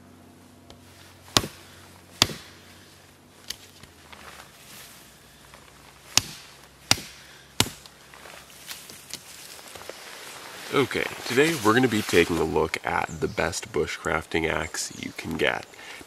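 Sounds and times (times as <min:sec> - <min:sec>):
axe chopping wood: 0:01.2 - 0:02.7, 0:06.0 - 0:08.0.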